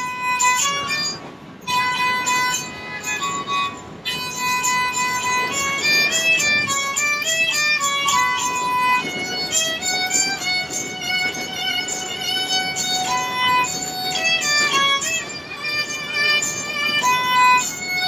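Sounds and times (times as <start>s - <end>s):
bowed sarangi melody: 0.0s - 18.0s
low train carriage noise: 0.0s - 18.0s.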